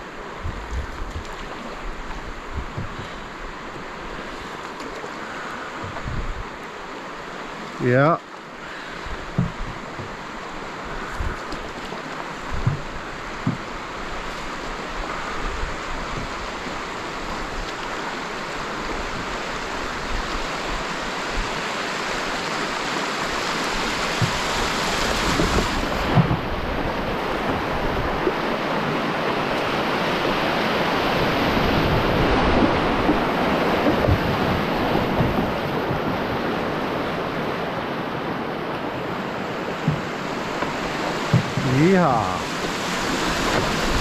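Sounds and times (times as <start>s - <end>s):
heavy rain on water: 0.0s - 44.0s
whitewater rushing: 0.0s - 44.0s
low knocks: 0.4s - 1.4s, 2.5s - 3.0s, 9.3s - 10.2s, 12.5s - 13.7s, 24.2s - 24.5s, 39.8s - 41.7s.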